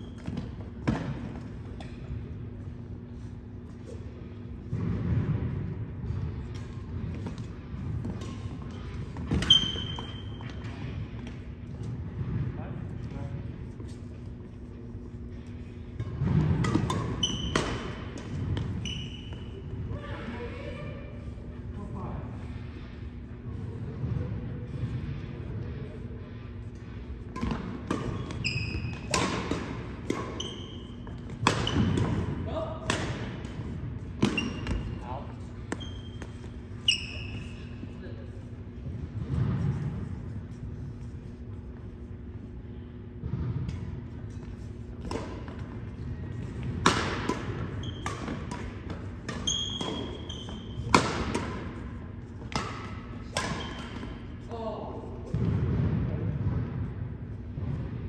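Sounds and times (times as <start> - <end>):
sneakers squeaking on hardwood: 8.2 - 10.8, 17.0 - 19.6, 28.0 - 29.5, 30.1 - 32.2, 34.2 - 37.9, 47.5 - 51.2
racket striking shuttlecock: 16.0 - 18.7, 27.3 - 33.6, 34.2 - 34.8, 46.6 - 54.2.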